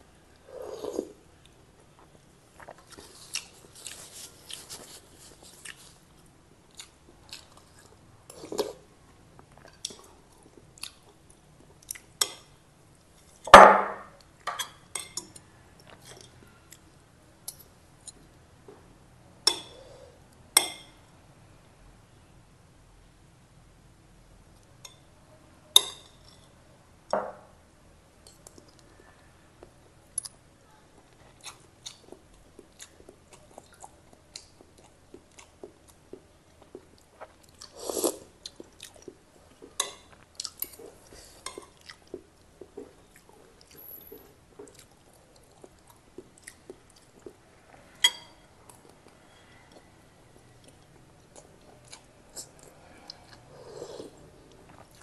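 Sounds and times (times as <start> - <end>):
chewing and lip smacking: 31.0 - 37.8, 38.4 - 47.4, 48.7 - 55.0.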